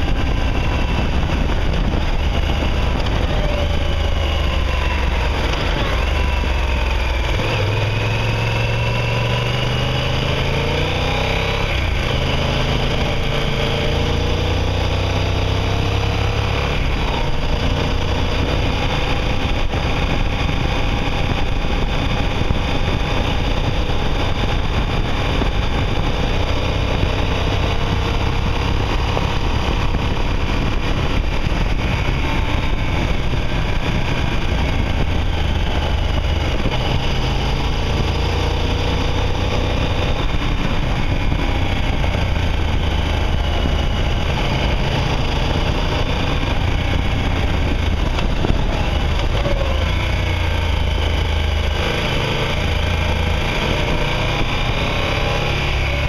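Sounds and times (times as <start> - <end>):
motorcycle engine running: 0.0 - 56.0
wind rumble on microphone: 0.0 - 56.0.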